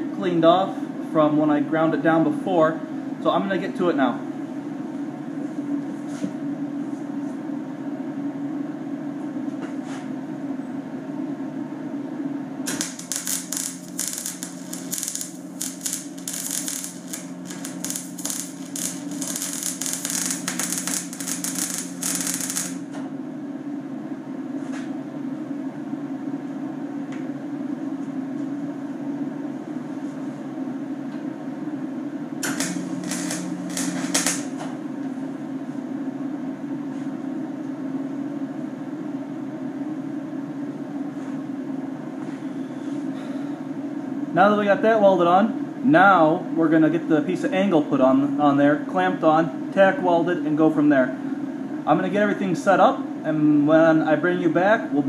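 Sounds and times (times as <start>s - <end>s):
steady low hum: 4.0s - 44.6s
welder arc crackling: 12.7s - 23.0s, 32.4s - 34.7s.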